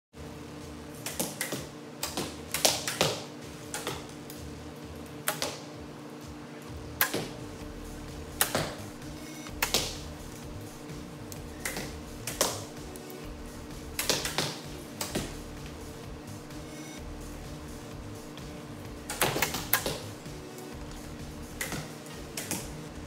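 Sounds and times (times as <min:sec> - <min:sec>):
compound bows shooting: 0:08.3 - 0:10.6, 0:19.0 - 0:22.8.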